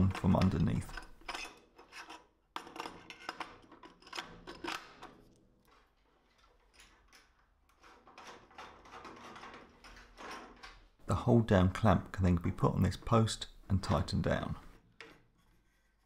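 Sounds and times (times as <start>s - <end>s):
soft scraping of handling: 14.7s - 16.0s.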